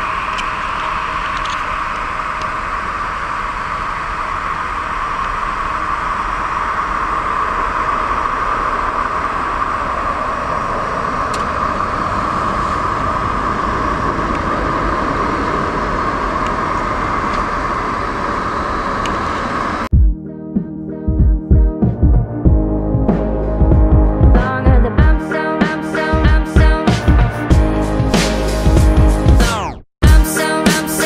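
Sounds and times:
jet engines at takeoff: 0.0 - 19.9.

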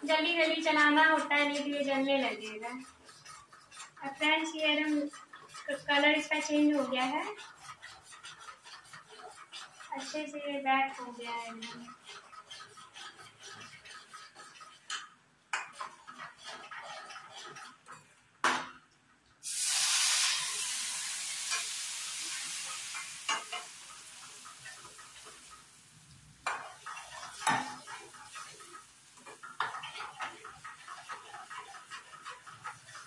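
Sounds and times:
spoon scraping metal pan: 0.0 - 18.2, 19.5 - 33.0
liquid sizzling in hot pan: 19.4 - 33.0
spoon knocking on pan: 26.4 - 28.0.

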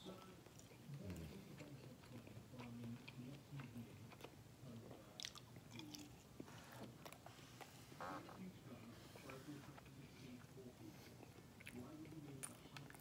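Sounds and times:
chewing with wet mouth clicks: 0.2 - 4.4, 5.1 - 7.2, 11.2 - 13.0.

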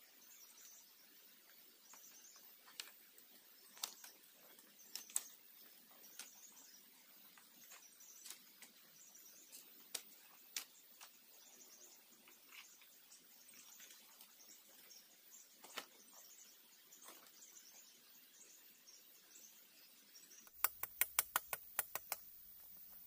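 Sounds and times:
sharp clicks and taps: 20.5 - 22.3.

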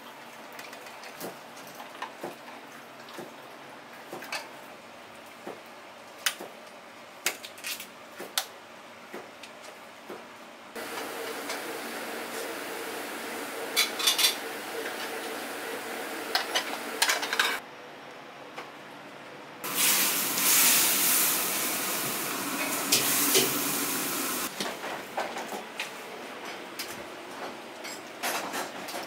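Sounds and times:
loud hiss of hot cooking: 10.8 - 17.6, 19.6 - 24.5
metal utensils and pans clinking: 13.7 - 15.2, 16.3 - 17.6.

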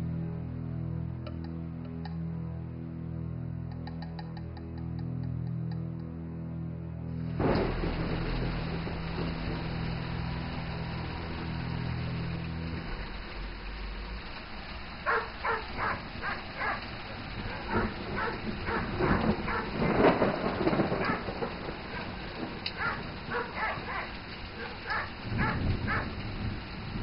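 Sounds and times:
dog barking: 15.0 - 19.8, 21.0 - 21.3, 21.9 - 22.2, 22.8 - 26.2.

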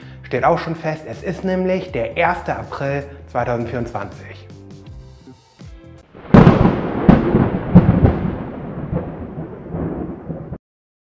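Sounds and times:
loud rumbling crash with cracks: 6.2 - 10.6.

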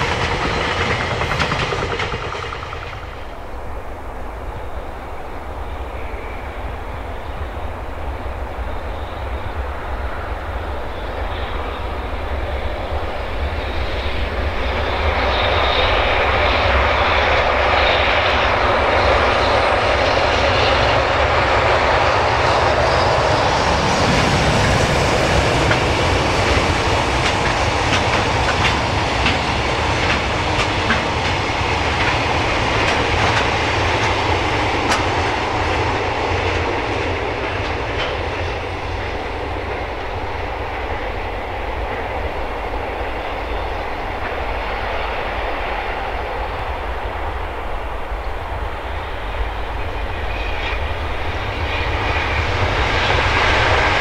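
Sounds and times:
wheels clacking over rail joints: 0.0 - 3.6, 24.1 - 40.0
train wheels rumbling on rail: 0.0 - 54.0.

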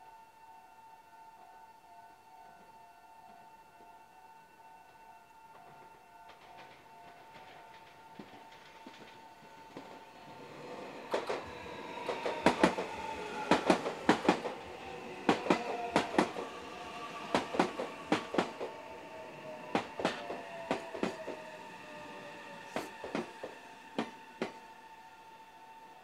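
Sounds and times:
train wheels knocking over rail joints: 6.3 - 16.5, 17.1 - 18.8, 19.7 - 21.5, 22.7 - 24.6.

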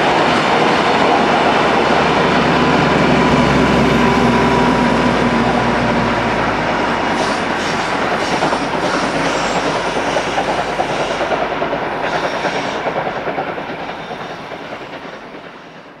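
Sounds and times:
diesel locomotive hum: 0.0 - 16.0
train wheels clattering over rail joints: 7.0 - 15.9.

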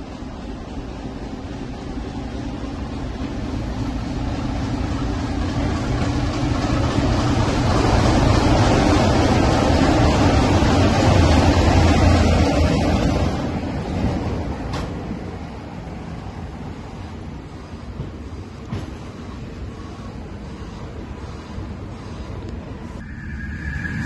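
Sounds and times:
diesel locomotive engine running: 0.0 - 13.7.

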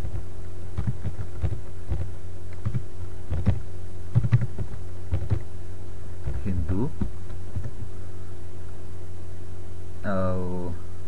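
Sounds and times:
low electrical hum: 0.0 - 11.0
computer keyboard clicks: 4.2 - 5.4.

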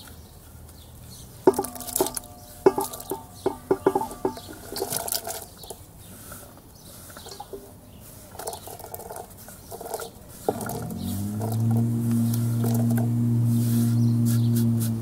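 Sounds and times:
vegetables falling into metal pot: 1.5 - 5.6.

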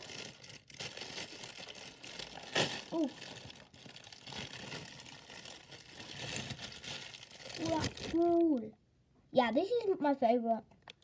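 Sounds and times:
plastic wrapper crinkling: 0.0 - 8.6.

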